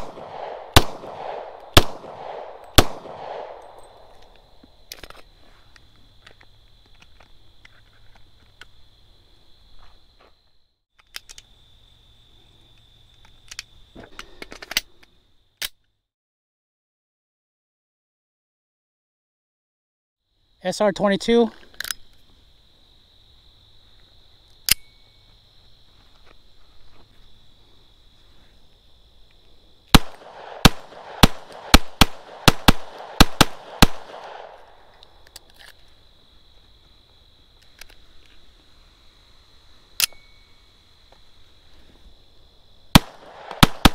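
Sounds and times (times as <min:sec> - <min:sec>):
pistol shots with echo: 0:00.0 - 0:04.1, 0:29.9 - 0:34.9, 0:42.9 - 0:43.9
pistol metallic clicks: 0:21.8 - 0:22.0, 0:24.6 - 0:25.0, 0:29.9 - 0:35.8, 0:40.0 - 0:40.3.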